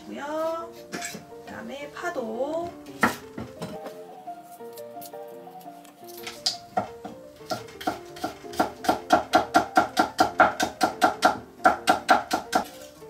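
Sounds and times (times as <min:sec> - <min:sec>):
knife chopping on wooden board: 0:03.0 - 0:04.0, 0:06.8 - 0:12.8.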